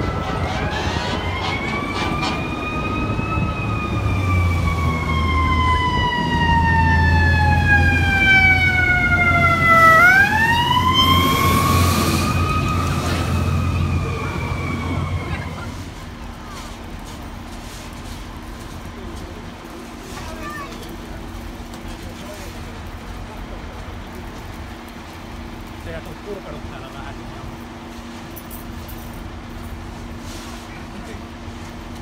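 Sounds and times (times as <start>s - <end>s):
fire truck siren wailing: 0.0s - 20.2s
passing traffic rumble: 0.0s - 32.0s.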